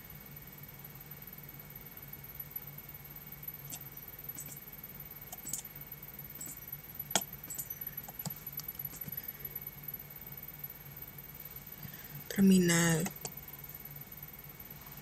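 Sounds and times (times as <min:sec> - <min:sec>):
steady low hum: 0:00.0 - 0:15.0
computer clicks: 0:05.3 - 0:05.7, 0:06.4 - 0:09.4, 0:12.9 - 0:13.4.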